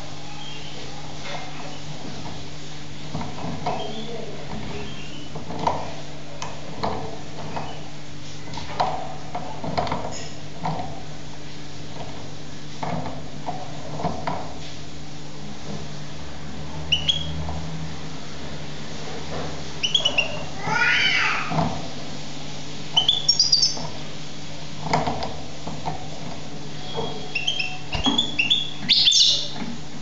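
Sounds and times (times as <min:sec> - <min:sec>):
goldfinch chirps: 0:23.0 - 0:23.8, 0:26.9 - 0:29.6.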